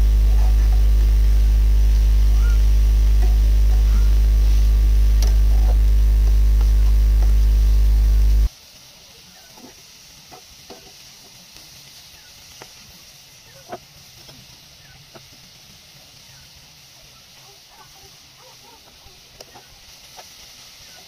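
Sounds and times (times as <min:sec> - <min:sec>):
loud hum: 0:00.0 - 0:08.5
carrots sizzling in a pan: 0:00.0 - 0:21.0.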